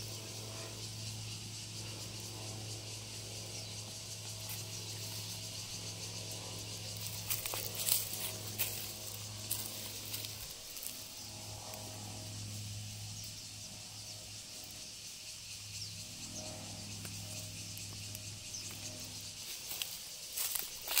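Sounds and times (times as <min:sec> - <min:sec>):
insects buzzing: 0:00.0 - 0:21.0
low steady hum: 0:00.0 - 0:21.0
faint ticks: 0:16.9 - 0:18.9.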